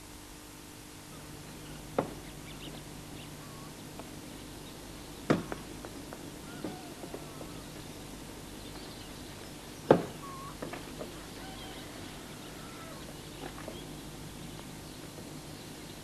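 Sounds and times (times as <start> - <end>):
sharp knocks: 5.2 - 7.2, 9.9 - 11.1.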